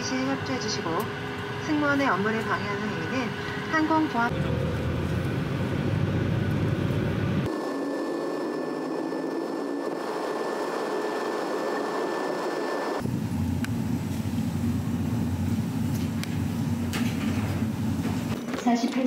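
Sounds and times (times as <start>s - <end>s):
jet engines roaring with whine: 0.0s - 18.8s
deep vehicle rumble: 2.9s - 7.5s.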